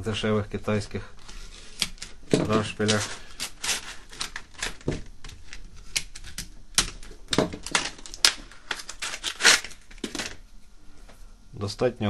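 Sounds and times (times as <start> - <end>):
plastic packaging crackling: 1.2 - 10.4.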